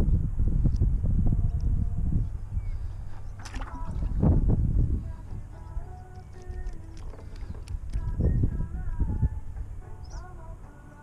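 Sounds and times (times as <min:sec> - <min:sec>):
low wind rumble on microphone: 0:00.0 - 0:11.0
fish flapping on wooden boards: 0:03.3 - 0:04.2.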